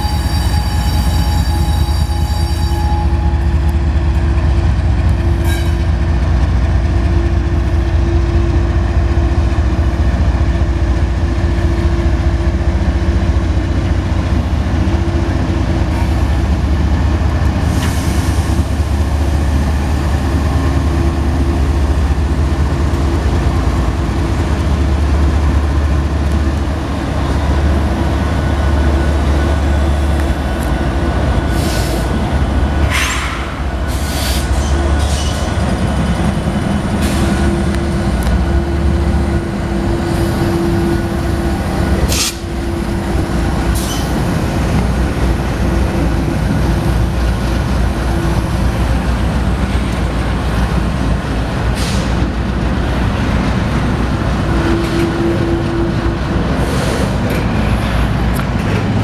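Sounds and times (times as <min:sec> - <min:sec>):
train wheel noise: 0:00.0 - 0:59.0
wheel squeals and clanks: 0:43.8 - 0:44.2.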